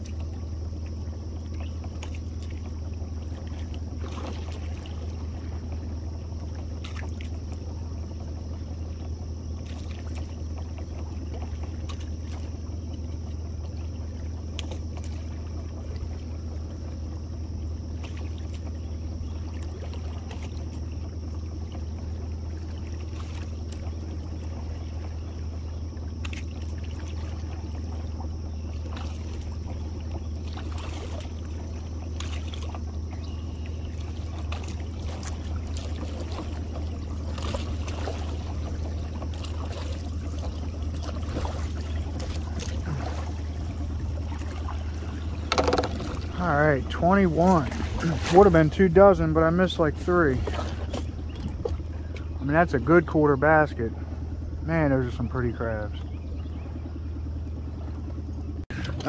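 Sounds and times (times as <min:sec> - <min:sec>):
water trickling: 0:00.0 - 0:56.1
outboard motor idling: 0:00.0 - 0:59.0.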